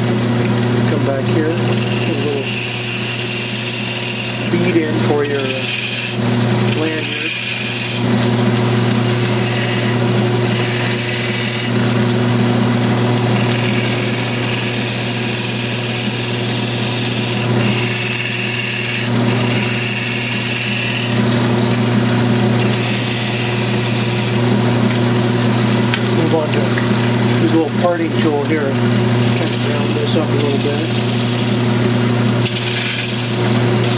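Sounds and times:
wood lathe motor hum: 0:00.0 - 0:33.9
gouge cutting wood hiss: 0:00.9 - 0:08.0, 0:13.3 - 0:21.2, 0:22.6 - 0:24.4, 0:26.2 - 0:31.7, 0:32.4 - 0:33.9.

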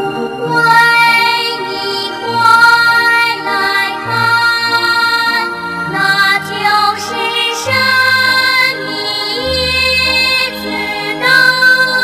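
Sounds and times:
gentle backing music: 0:00.0 - 0:12.0
person singing: 0:00.0 - 0:12.0.

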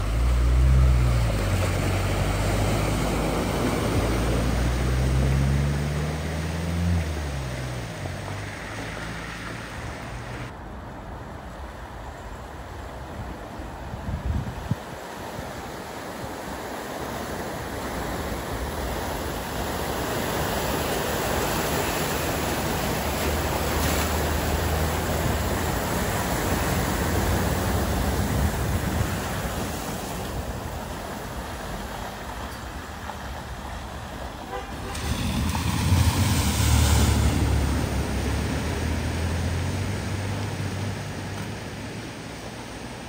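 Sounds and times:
water rushing and sloshing: 0:00.0 - 0:43.0
rush of spray from car: 0:18.8 - 0:32.0, 0:33.9 - 0:39.9.

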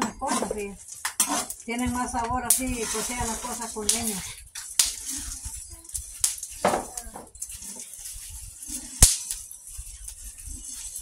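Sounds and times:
dry seeds rattling: 0:00.6 - 0:11.0.

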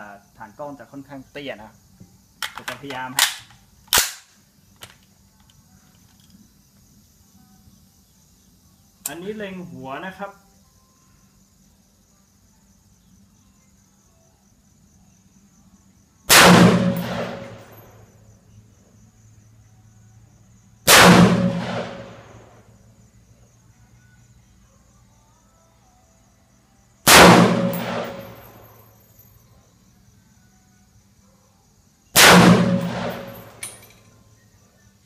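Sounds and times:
rifle shots echoing: 0:16.3 - 0:17.8, 0:20.9 - 0:22.4, 0:27.1 - 0:28.6, 0:32.2 - 0:33.8.

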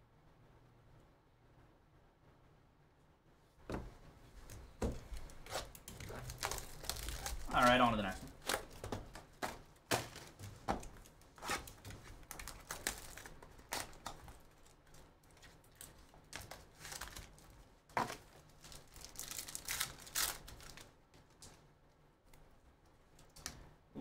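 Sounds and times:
plastic wrapping crinkling and tearing: 0:04.9 - 0:21.6.

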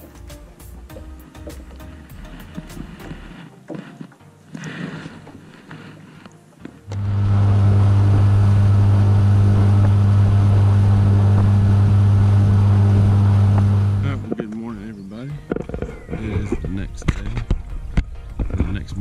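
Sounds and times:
outboard motor running: 0:04.6 - 0:14.7.

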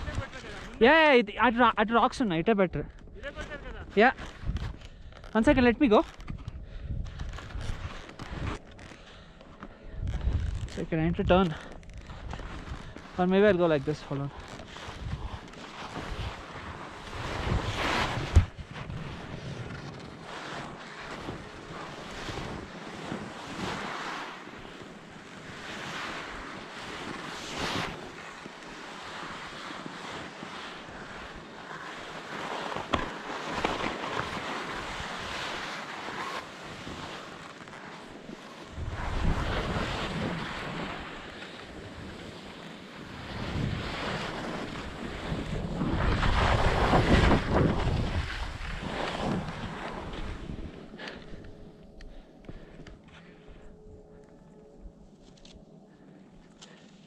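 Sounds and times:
wind on microphone: 0:00.0 - 0:00.8, 0:03.0 - 0:08.6, 0:09.9 - 0:13.0, 0:14.1 - 0:20.3, 0:38.6 - 0:42.3, 0:43.0 - 0:52.7
skis scraping on packed snow: 0:00.0 - 0:01.6, 0:03.1 - 0:53.4.

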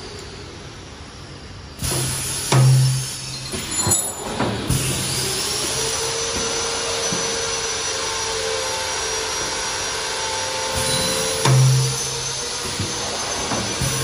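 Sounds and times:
machine whine: 0:00.0 - 0:14.0
machine whooshing hiss: 0:01.8 - 0:08.2, 0:10.3 - 0:14.0.

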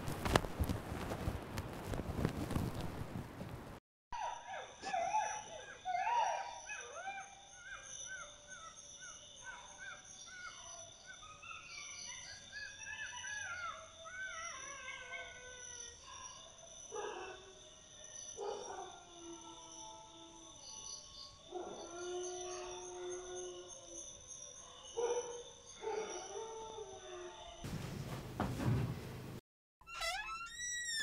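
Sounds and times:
canines yipping and howling: 0:04.2 - 0:17.4, 0:21.5 - 0:27.6.

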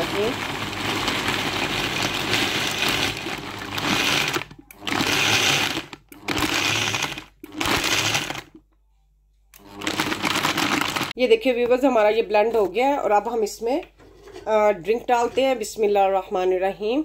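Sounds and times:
blender crushing ice: 0:00.0 - 0:08.6, 0:09.6 - 0:11.2.

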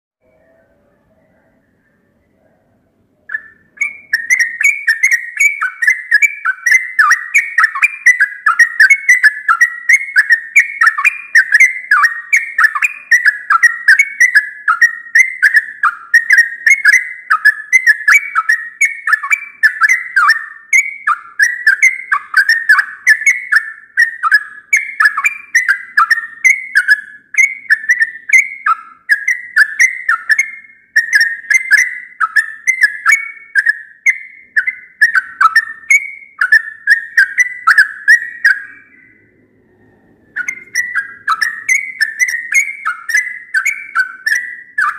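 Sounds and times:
bulbul warbling song: 0:00.2 - 0:44.9.

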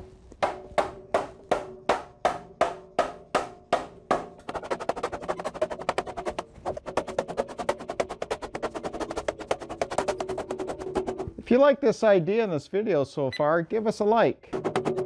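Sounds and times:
drum hits: 0:00.4 - 0:04.3.

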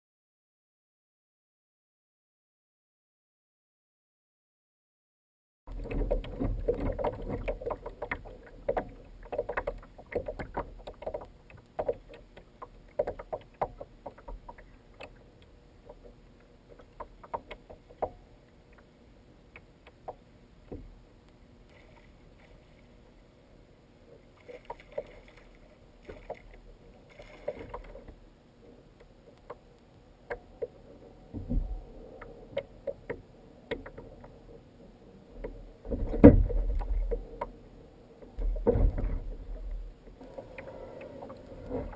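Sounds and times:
water slapping against kayak hull: 0:05.7 - 0:15.2, 0:35.9 - 0:37.5
low bumps on hull: 0:35.4 - 0:37.5, 0:38.3 - 0:40.1.

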